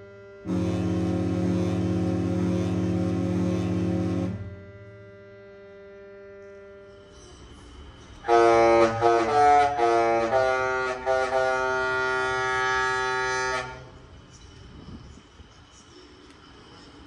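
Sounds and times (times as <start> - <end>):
ship horn playing tune: 0.0 - 7.1, 8.2 - 14.0.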